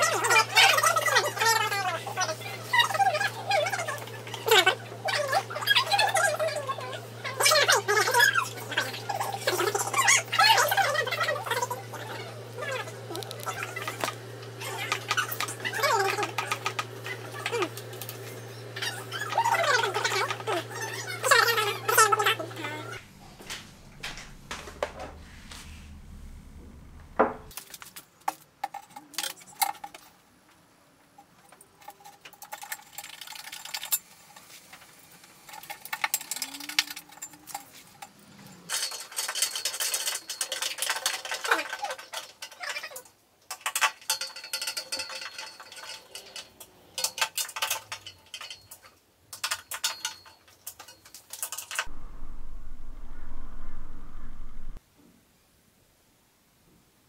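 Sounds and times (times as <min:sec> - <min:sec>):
metal parts clinking and scraping: 0:31.3 - 0:51.8.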